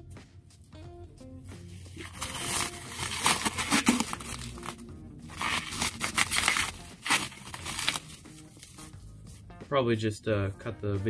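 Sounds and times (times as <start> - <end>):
plastic wrap crinkling and tearing: 1.7 - 8.9.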